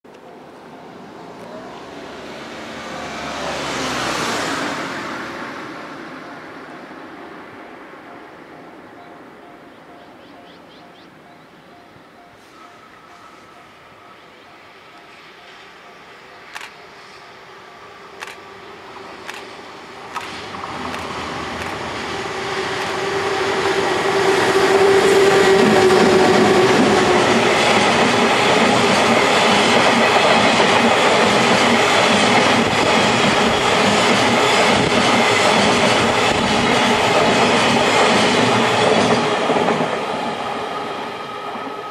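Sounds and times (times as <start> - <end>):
freight wagons rumbling past: 18.4 - 40.9
wheels clicking over rail joints: 19.0 - 23.0.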